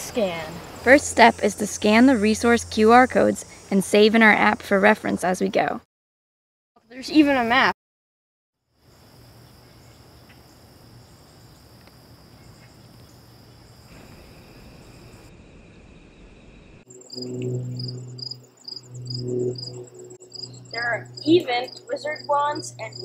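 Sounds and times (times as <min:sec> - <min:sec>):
continuous high trill: 0:00.0 - 0:04.9, 0:16.8 - 0:23.0
high-pitched insect buzz: 0:00.6 - 0:04.7, 0:16.9 - 0:23.0
low hum: 0:00.7 - 0:03.9, 0:15.2 - 0:23.0.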